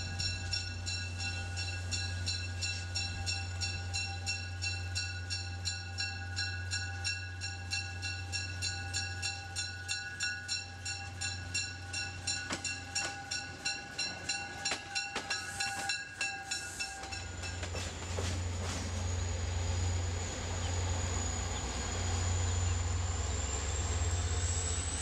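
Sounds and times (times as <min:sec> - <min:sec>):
railroad bell dinging: 0:00.0 - 0:25.0
sharp train clicks: 0:07.5 - 0:25.0.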